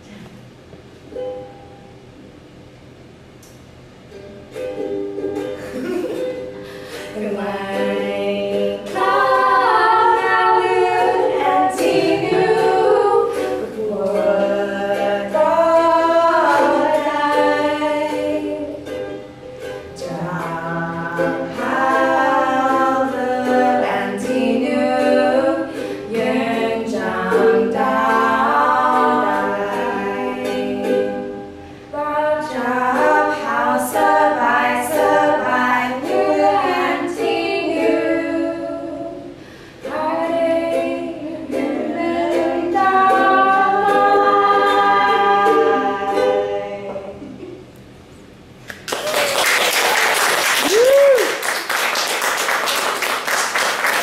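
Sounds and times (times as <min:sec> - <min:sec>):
strummed ukulele: 0:00.9 - 0:02.3, 0:03.4 - 0:49.0
women singing together: 0:07.0 - 0:19.0, 0:20.0 - 0:47.6.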